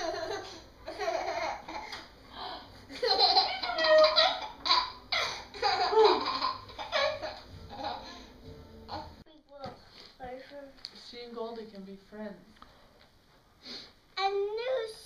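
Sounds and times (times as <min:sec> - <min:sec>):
toddler laughing: 0:00.0 - 0:02.1, 0:02.9 - 0:08.3.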